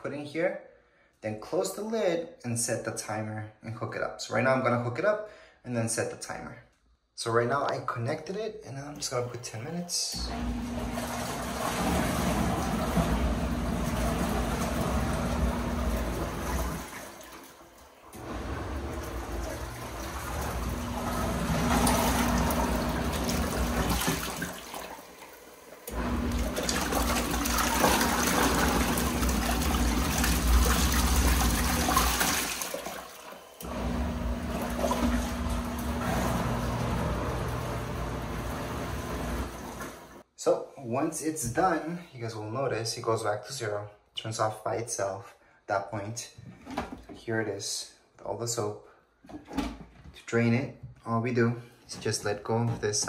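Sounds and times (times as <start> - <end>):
washing machine motor humming: 10.1 - 40.2
water sloshing in tub: 10.3 - 40.2.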